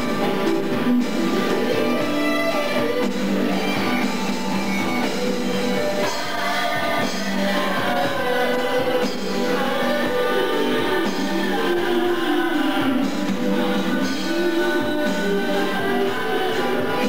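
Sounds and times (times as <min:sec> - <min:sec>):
electric guitar: 0:00.0 - 0:17.0
man singing: 0:05.5 - 0:17.0.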